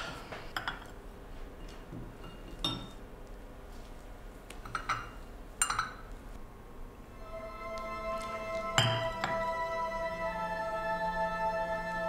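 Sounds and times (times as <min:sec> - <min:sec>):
teacups and saucers clinking: 0:04.7 - 0:06.0, 0:08.8 - 0:09.4.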